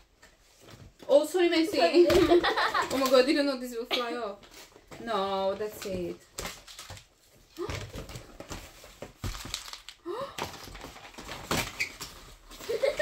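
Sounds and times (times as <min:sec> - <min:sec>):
cardboard boxes knocking and rustling: 0:07.6 - 0:13.0.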